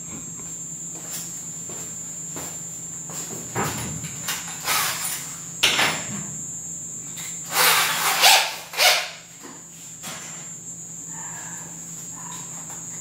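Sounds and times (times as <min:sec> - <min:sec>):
drill chuck rasping scrapes: 0:04.6 - 0:05.2.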